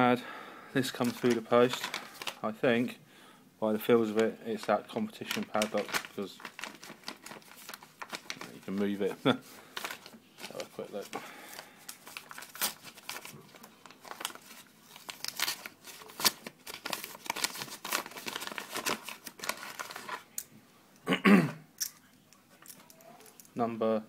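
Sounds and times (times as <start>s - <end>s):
envelope ripping and rustling: 1.0s - 2.4s, 5.2s - 20.3s.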